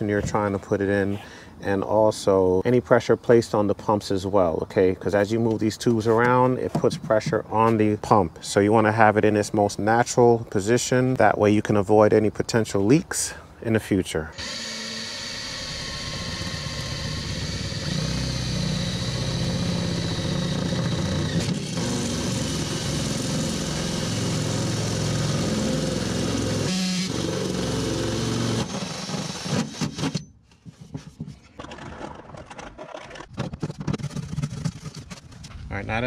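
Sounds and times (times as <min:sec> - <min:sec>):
cordless drill cutting metal: 0:14.3 - 0:30.2
clicks and scraping: 0:29.0 - 0:35.7.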